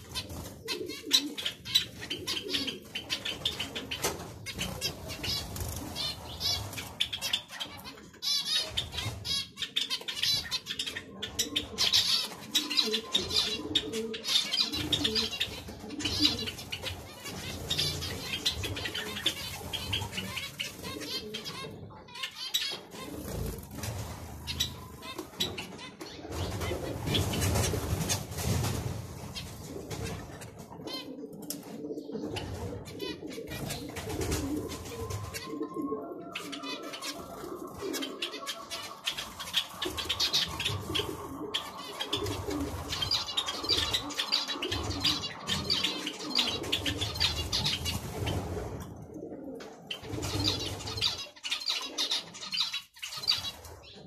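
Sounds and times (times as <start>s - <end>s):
finches chirping: 0.0s - 23.6s, 34.6s - 48.0s
pigeons cooing: 0.0s - 54.0s.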